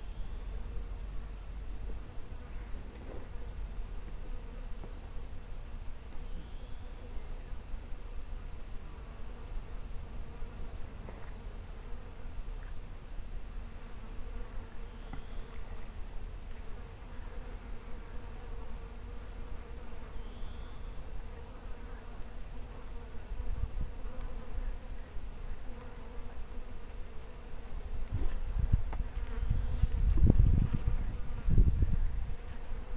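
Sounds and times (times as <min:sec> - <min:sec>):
insect buzzing: 0:00.0 - 0:32.9
wind rumble on microphone: 0:27.9 - 0:32.6.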